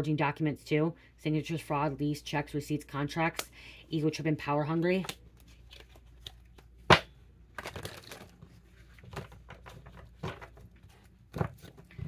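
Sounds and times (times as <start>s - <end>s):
paper rustling: 7.6s - 12.0s.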